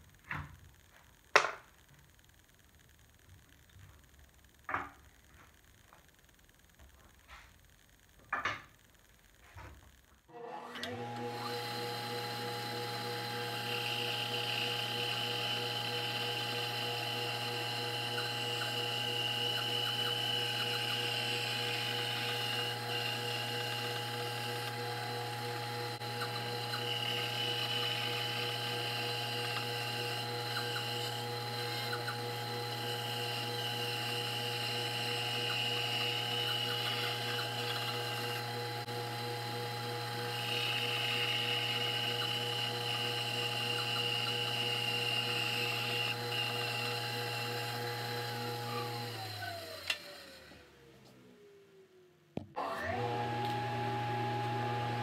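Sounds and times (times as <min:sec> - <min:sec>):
bandsaw running: 0:10.3 - 0:50.7
saw blade cutting wood: 0:18.0 - 0:38.7.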